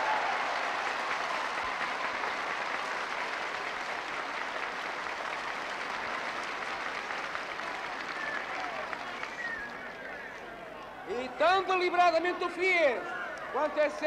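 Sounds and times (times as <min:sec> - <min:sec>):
huge crowd applauding: 0:00.0 - 0:11.2.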